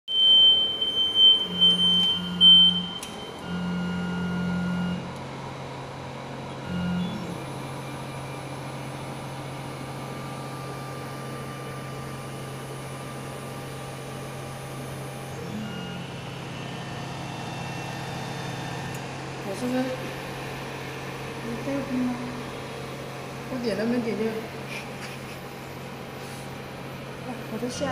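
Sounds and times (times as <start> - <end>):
high electronic beep: 0.1 - 4.1
motor humming: 0.9 - 27.9
steady low hum: 0.9 - 27.9.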